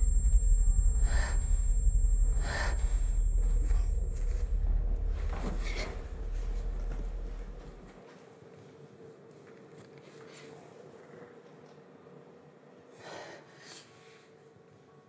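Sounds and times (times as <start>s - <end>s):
soft hissing swells: 0.0s - 7.8s
deep low rumble: 0.0s - 7.9s.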